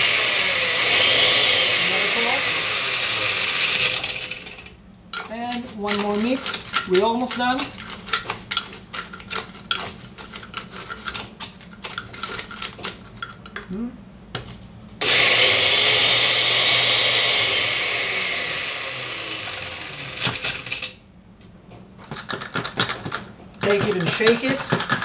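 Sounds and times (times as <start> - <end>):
blender crushing ice: 0.0 - 4.7, 15.0 - 21.0, 22.1 - 25.0
ice cubes clattering in jar: 5.2 - 13.4, 22.1 - 25.0.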